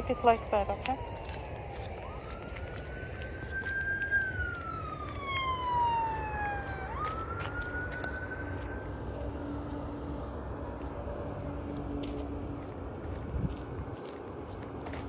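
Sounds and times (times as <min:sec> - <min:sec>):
emergency siren wailing: 0:00.0 - 0:15.0.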